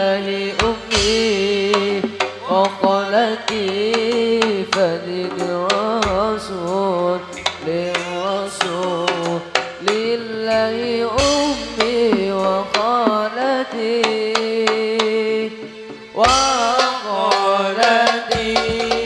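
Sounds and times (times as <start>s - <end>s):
man singing into a microphone: 0.0s - 19.0s
frame drums in quick rhythm: 0.5s - 19.0s
deep bass drum strokes: 10.5s - 12.8s.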